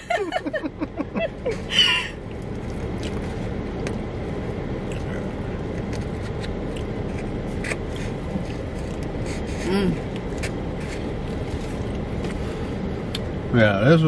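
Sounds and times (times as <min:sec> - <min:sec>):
person laughing: 0:00.0 - 0:02.1
car cabin hum and rush: 0:00.0 - 0:14.0.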